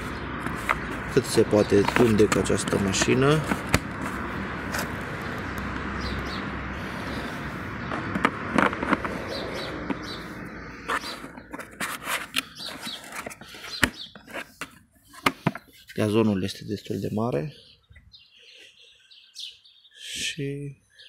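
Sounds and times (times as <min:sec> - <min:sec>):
plastic clicks handling battery packs: 0:01.7 - 0:04.0.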